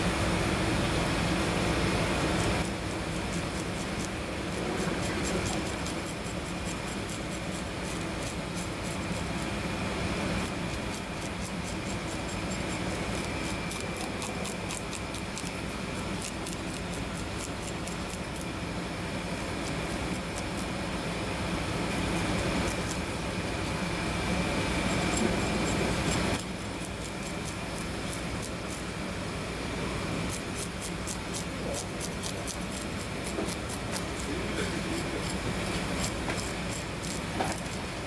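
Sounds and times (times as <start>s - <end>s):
steady low hum: 0.0s - 38.0s
knife scraping fish scales: 21.9s - 23.8s, 30.3s - 38.0s.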